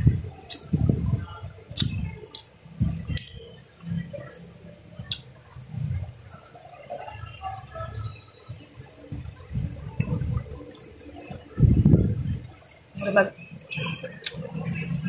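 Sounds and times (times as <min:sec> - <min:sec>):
lip-smacking clicks: 0:01.8 - 0:02.5.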